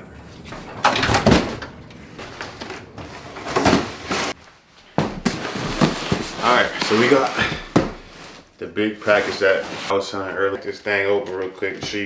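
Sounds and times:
front door shutting: 0:00.4 - 0:02.4
knocks and scuffs of cardboard box: 0:05.0 - 0:08.4.

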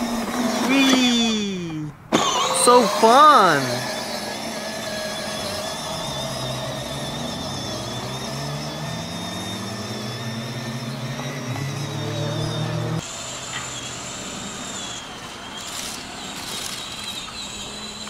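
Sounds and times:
electric toy car motors whining: 0:00.0 - 0:18.0.

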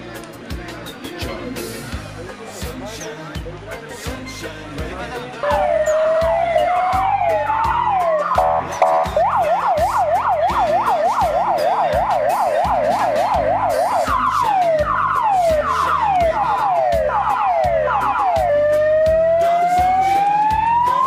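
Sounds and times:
police siren: 0:05.4 - 0:21.0.

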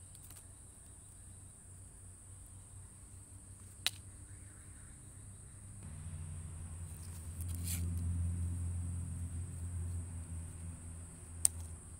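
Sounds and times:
high-pitched whine: 0:05.8 - 0:10.1
engine running: 0:05.8 - 0:11.9.

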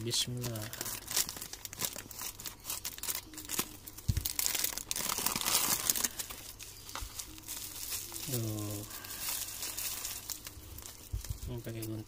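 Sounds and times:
plastic crinkling and rustling: 0:00.0 - 0:12.0.

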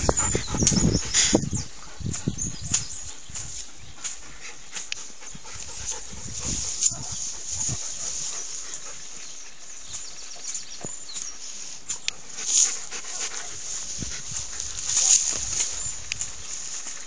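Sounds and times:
dogs panting: 0:00.0 - 0:11.0, 0:12.0 - 0:16.1
dogs scuffling and rustling: 0:05.5 - 0:09.6, 0:10.8 - 0:17.0.

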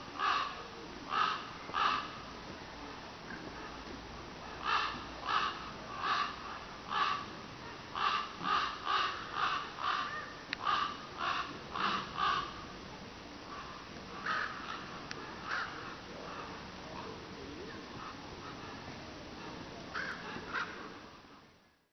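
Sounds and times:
bird calling: 0:04.6 - 0:12.6.

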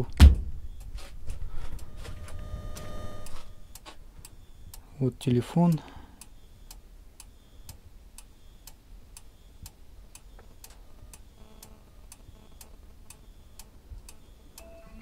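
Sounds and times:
sharp ticking: 0:02.7 - 0:14.8
faint short tones: 0:14.2 - 0:15.0.

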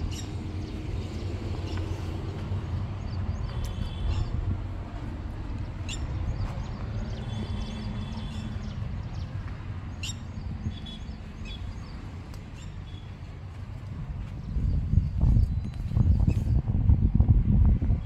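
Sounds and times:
steady low rumble: 0:00.0 - 0:18.0
birds chirping: 0:05.4 - 0:13.4.

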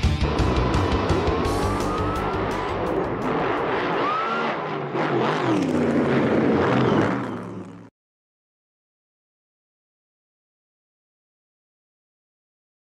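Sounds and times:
racing car engine revving: 0:00.0 - 0:07.9.

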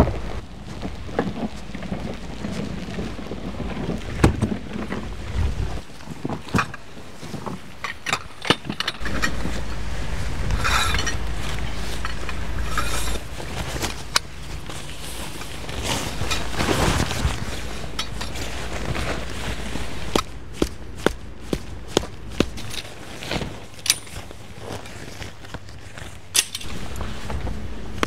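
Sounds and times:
wind on microphone: 0:00.0 - 0:24.6
camping gear clicking and clinking: 0:05.8 - 0:09.9, 0:10.5 - 0:28.0.

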